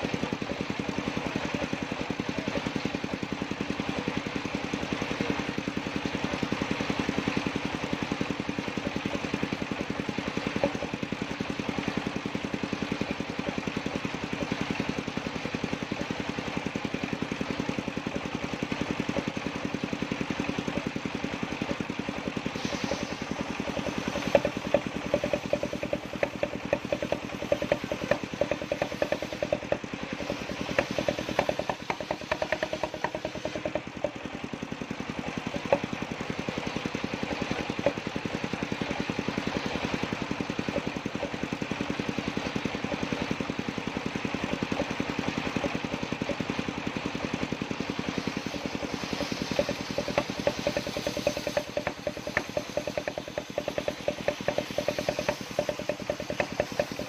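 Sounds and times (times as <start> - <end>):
circular sawmill cutting wood: 0.0 - 57.0
boards knocking and clattering: 22.6 - 34.2, 48.6 - 57.0.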